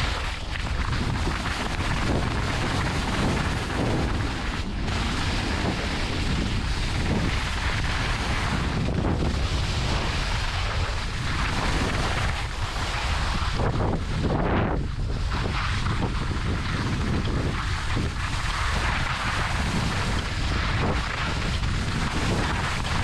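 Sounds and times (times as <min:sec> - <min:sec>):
skis scraping icy snow: 0:00.0 - 0:23.0
wind buffeting microphone: 0:00.0 - 0:23.0.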